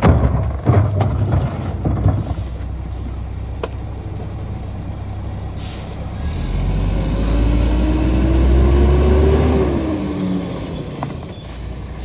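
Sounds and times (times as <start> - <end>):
diesel truck engine idling: 2.3 - 6.8
air brakes hissing: 5.6 - 6.0.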